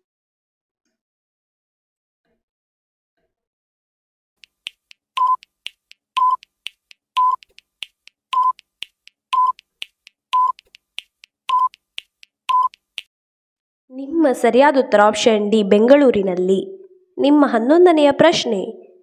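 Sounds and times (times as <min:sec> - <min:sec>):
timer ticks: 0:04.4 - 0:13.1
short beeps: 0:05.2 - 0:05.5, 0:06.2 - 0:06.5, 0:07.2 - 0:07.4, 0:08.4 - 0:08.6, 0:09.4 - 0:09.6, 0:10.4 - 0:10.6, 0:11.5 - 0:11.8, 0:12.5 - 0:12.8.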